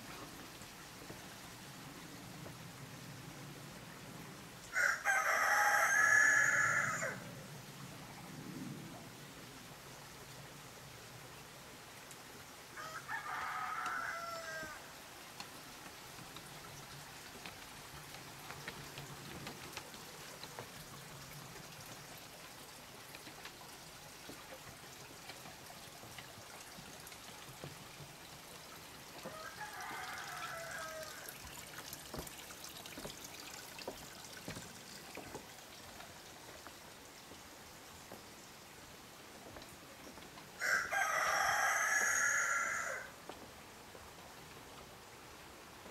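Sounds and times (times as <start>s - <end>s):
faint rain dripping: 0.0s - 45.9s
rooster crowing: 4.7s - 7.2s, 12.8s - 14.9s, 29.2s - 31.3s, 40.6s - 43.1s.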